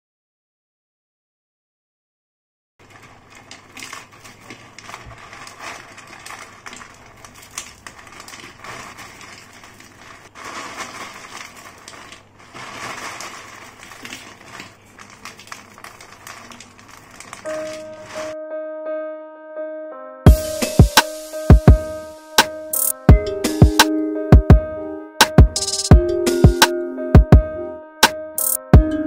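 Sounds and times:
crisp fried snacks snapping: 2.8s - 18.2s.

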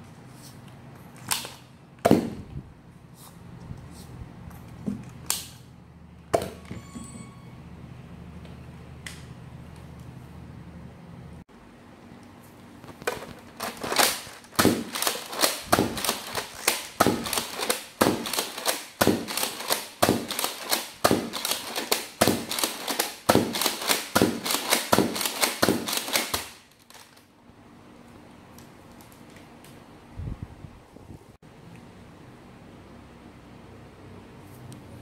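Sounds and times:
toy blaster pumped and fired: 13.6s - 26.6s.

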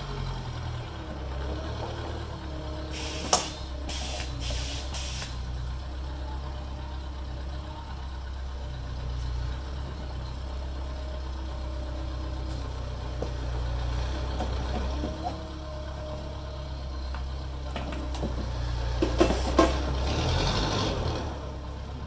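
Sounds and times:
engine idling: 0.0s - 20.1s
rivet gun air hissing: 2.9s - 5.4s.

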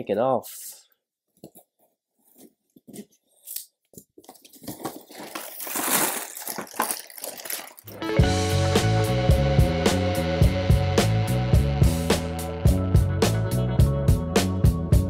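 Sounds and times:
cardboard rustling: 1.5s - 7.9s
plastic bags crinkling: 2.9s - 8.0s.

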